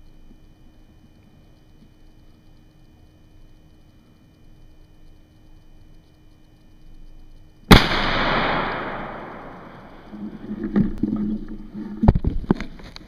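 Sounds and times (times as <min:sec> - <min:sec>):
shotgun shot echoing: 0:07.7 - 0:10.2.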